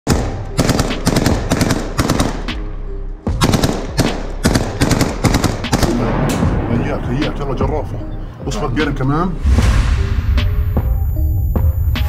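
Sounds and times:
automatic gunfire bursts: 0.6 - 2.4, 3.4 - 6.0.

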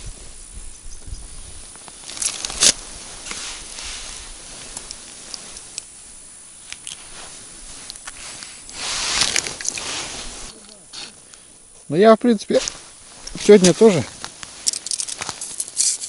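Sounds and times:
hands handling fish clicks: 6.7 - 7.0, 14.2 - 16.0
clothing rustling: 6.9 - 11.2, 12.5 - 16.0.

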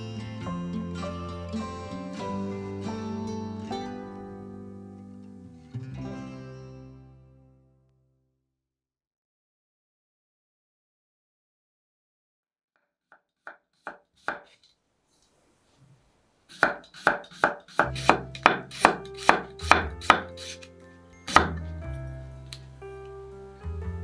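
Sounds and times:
knife slicing cucumber on board: 14.2 - 14.5, 16.5 - 20.6, 21.3 - 21.6.

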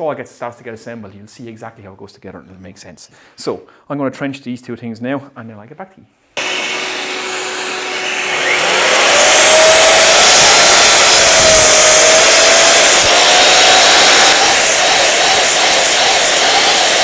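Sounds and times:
mitre saw cutting wood: 6.4 - 17.0.

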